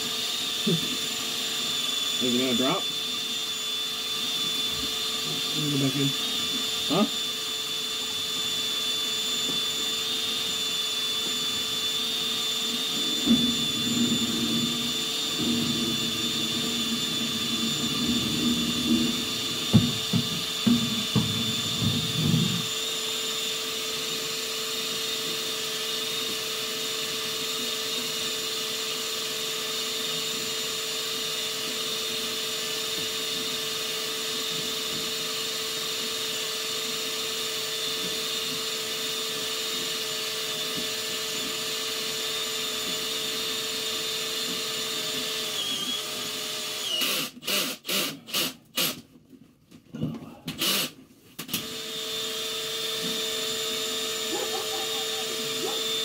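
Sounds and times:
drain-cleaning machine motor whining: 0.0s - 23.6s, 51.5s - 56.0s.

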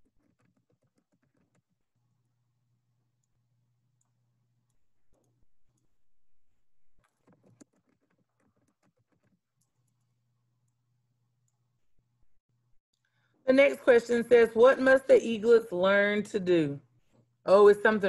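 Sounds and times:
keyboard typing: 0.1s - 2.2s.

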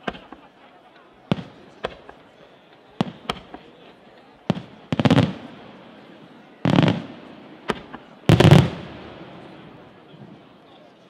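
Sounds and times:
firework crackling: 4.5s - 9.9s
firework shells bursting: 6.7s - 9.2s.

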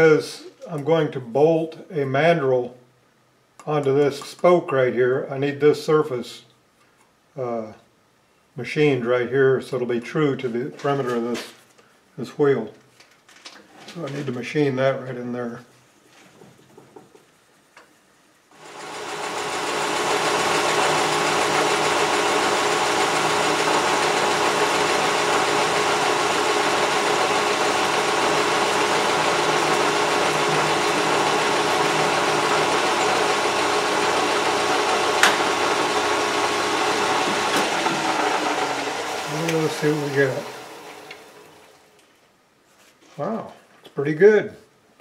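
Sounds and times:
metal lathe running: 18.6s - 41.8s.

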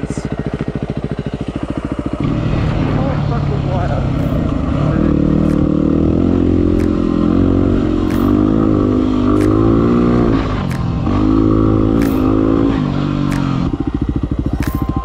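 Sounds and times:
motorcycle engine revving: 0.0s - 15.0s
short sharp clicks: 6.7s - 7.1s, 8.0s - 8.5s, 9.3s - 9.8s, 10.6s - 11.0s, 11.9s - 12.5s, 13.2s - 13.8s, 14.6s - 15.0s.

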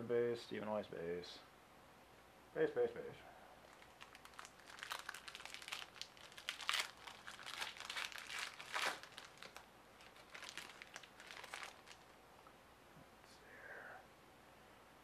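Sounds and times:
foil wrapper crinkling and tearing: 3.6s - 12.1s.

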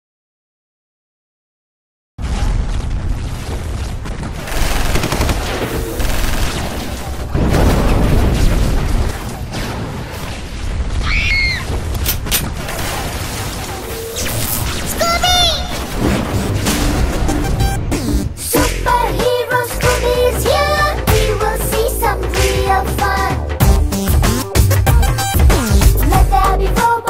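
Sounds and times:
gunfire: 2.2s - 11.0s, 11.7s - 17.5s
explosions: 2.2s - 19.0s.

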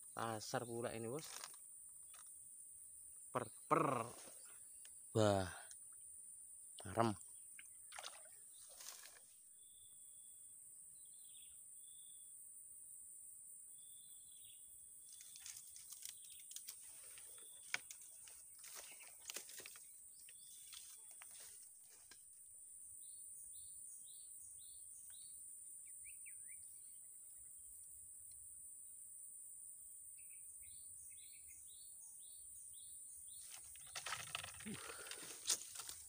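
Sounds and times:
birds chirping: 0.0s - 12.3s, 13.8s - 22.2s, 30.1s - 36.0s
sharp clicks and rustles: 1.2s - 2.2s, 15.2s - 19.8s, 33.4s - 36.0s.

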